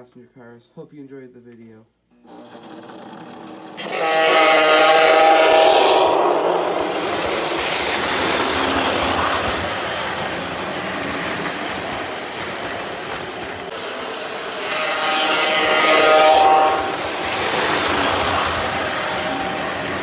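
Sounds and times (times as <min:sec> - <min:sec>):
toy train wheels rumbling: 0:02.3 - 0:20.0
buzzing train horn: 0:03.8 - 0:08.1, 0:13.7 - 0:20.0.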